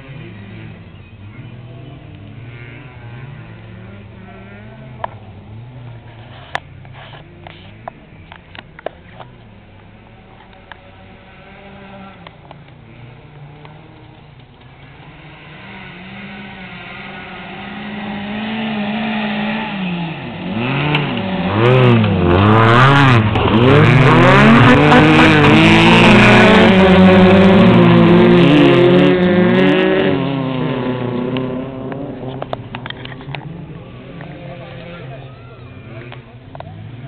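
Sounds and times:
rally car engines revving: 0.0 - 37.0.

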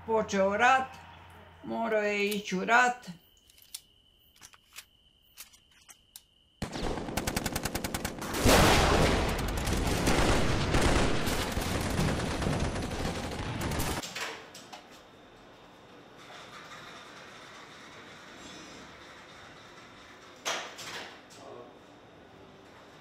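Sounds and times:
automatic gunfire: 6.6 - 14.0.

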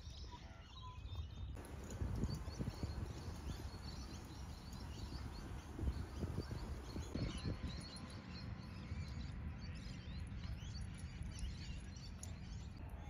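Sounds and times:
small birds chirping: 0.8 - 12.8
steady low rumble: 1.6 - 7.6.

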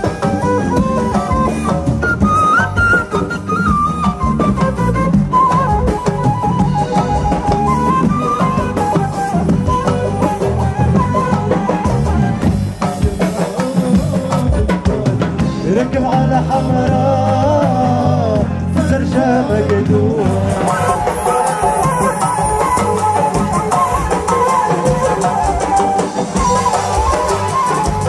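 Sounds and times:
wavering folk melody: 0.0 - 14.3, 20.2 - 28.0
steady drums: 0.0 - 28.0.

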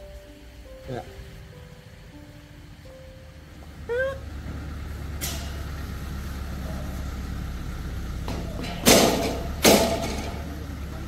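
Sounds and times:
vehicle engine idling: 0.0 - 11.0
loud sharp bangs: 8.2 - 10.6.

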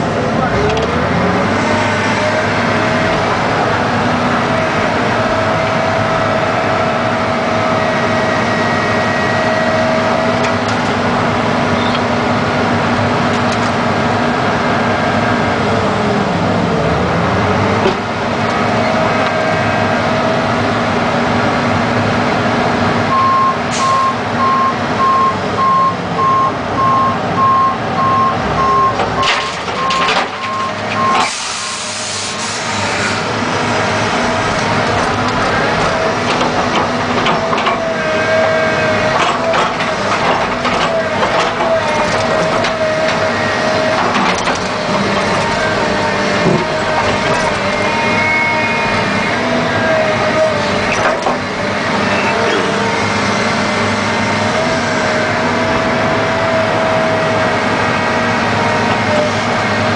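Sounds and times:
excavator engine and hydraulics: 0.0 - 59.9
truck reversing alarm beeps: 23.1 - 32.3.

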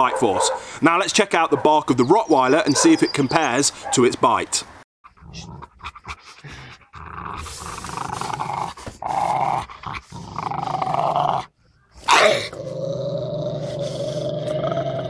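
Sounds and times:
dog growling: 5.2 - 15.0.

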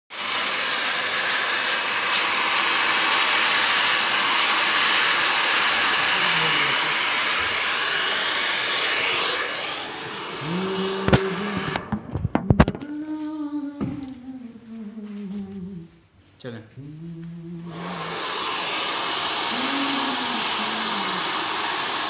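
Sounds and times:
hair dryer blowing: 0.1 - 12.6, 17.3 - 22.0.

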